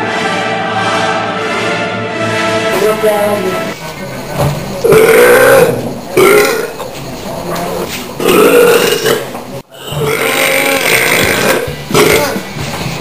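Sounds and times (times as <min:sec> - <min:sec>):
man belching loudly: 0:04.8 - 0:06.8, 0:08.2 - 0:12.5.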